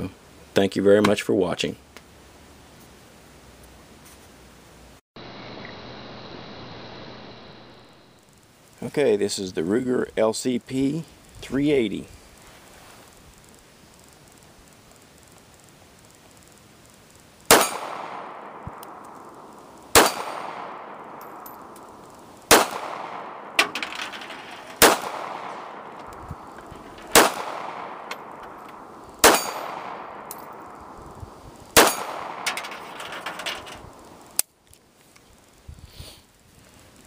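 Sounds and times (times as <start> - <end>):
faint ticks: 12.3 - 17.3, 34.2 - 37.0
pistol shots with echo: 17.5 - 23.8, 24.7 - 32.9.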